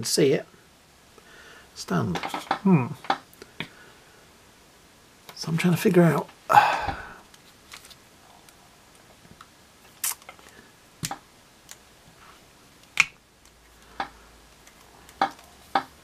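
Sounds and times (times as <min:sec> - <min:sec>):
handling rustle: 0:07.3 - 0:08.1.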